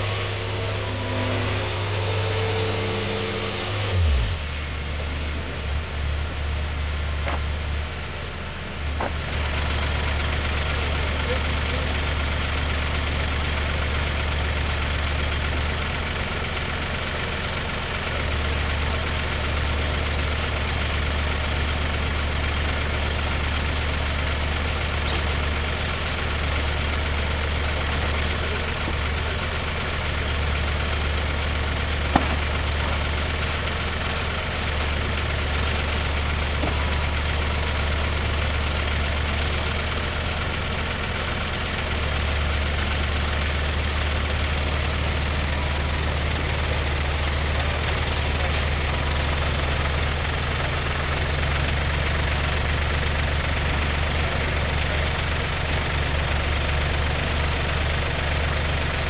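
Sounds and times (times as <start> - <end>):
engine idling: 0.0 - 59.0
sharp knock: 32.1 - 32.5.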